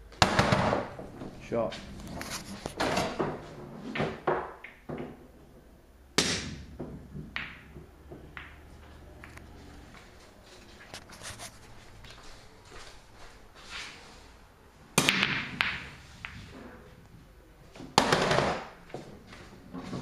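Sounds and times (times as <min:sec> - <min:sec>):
pool balls clicking: 0:02.1 - 0:05.6, 0:06.2 - 0:10.2, 0:14.9 - 0:20.0
balls knocking on table: 0:02.8 - 0:05.2, 0:06.2 - 0:09.4, 0:15.0 - 0:16.6, 0:17.9 - 0:18.8.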